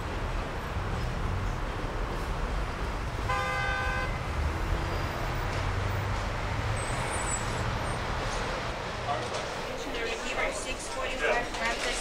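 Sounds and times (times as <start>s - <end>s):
city street traffic: 0.0s - 12.0s
car horn honking: 3.3s - 4.2s.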